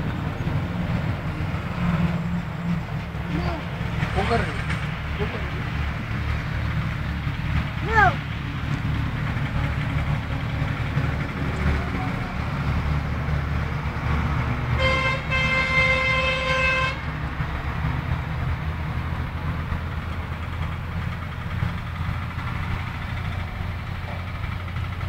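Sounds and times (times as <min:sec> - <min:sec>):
vehicle horn toots: 0:14.8 - 0:17.0.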